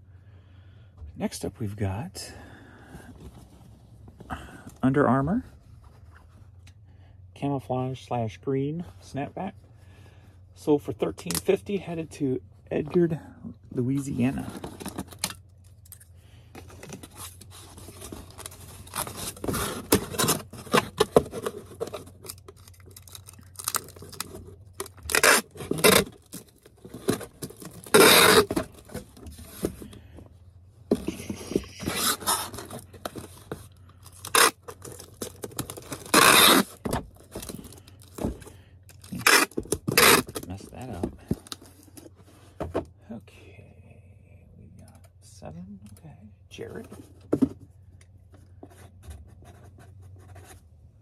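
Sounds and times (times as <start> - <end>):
packing materials rustling: 16.6 - 29.9, 30.9 - 42.2
long tearing strokes: 25.0 - 26.0, 27.8 - 28.5.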